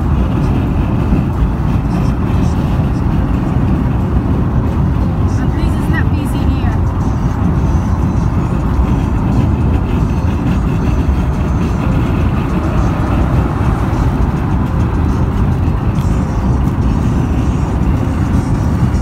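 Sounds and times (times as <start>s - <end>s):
car interior road rumble: 0.0s - 19.0s.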